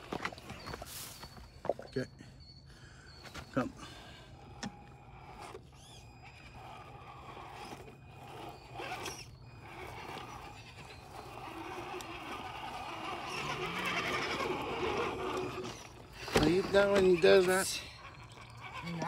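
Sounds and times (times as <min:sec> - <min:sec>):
small electric motor whirring: 0:04.0 - 0:19.0.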